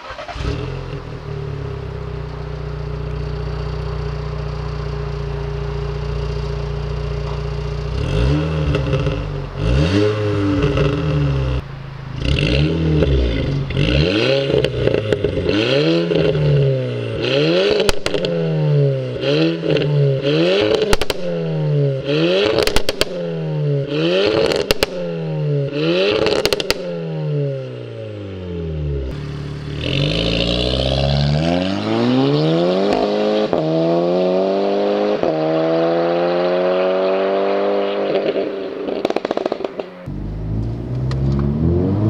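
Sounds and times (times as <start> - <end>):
exhaust crackles and pops: 0.0 - 16.6, 17.6 - 18.5, 20.6 - 21.5, 22.4 - 23.4, 24.2 - 25.3, 26.0 - 27.0, 38.1 - 41.6
car engine idling: 0.0 - 17.2, 26.4 - 31.2, 39.0 - 42.0
engine throttle blips: 0.0 - 33.8.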